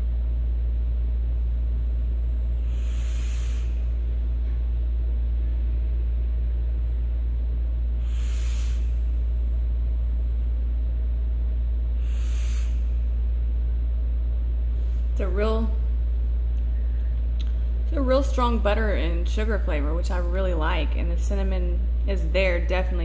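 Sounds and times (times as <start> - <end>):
steady low hum: 0.0 - 23.0
breathy vaping hisses: 2.6 - 4.0, 8.0 - 9.3, 11.9 - 13.1.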